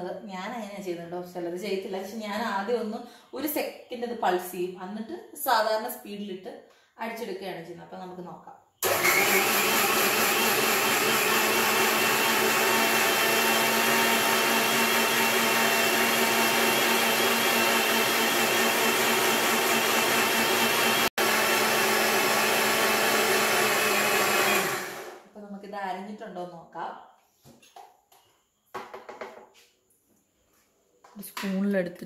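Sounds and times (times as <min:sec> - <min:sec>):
mixer grinder running: 0:08.8 - 0:25.2.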